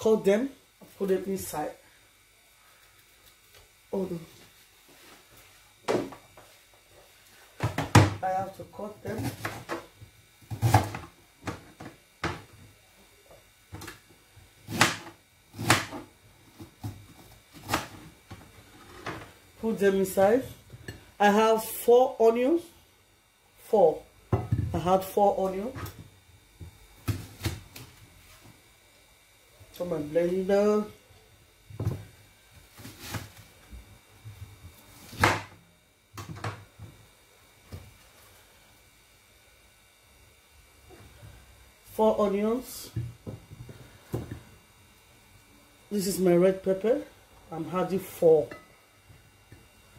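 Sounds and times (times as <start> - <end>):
knife chopping on a board: 14.7 - 16.1, 35.1 - 35.5.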